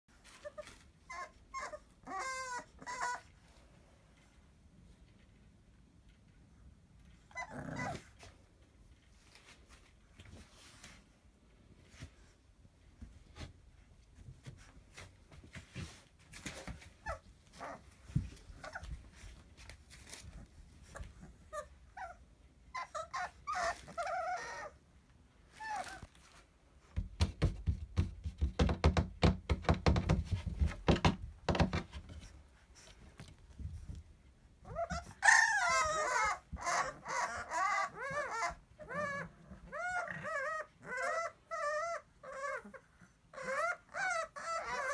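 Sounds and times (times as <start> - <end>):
puppies whining and yelping: 0.2 - 3.6, 7.0 - 8.5, 16.6 - 19.4, 20.0 - 26.3, 34.6 - 44.9.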